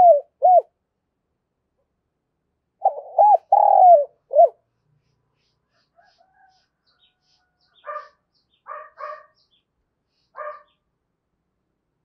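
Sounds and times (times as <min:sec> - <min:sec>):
small birds chirping: 0:02.8 - 0:11.0.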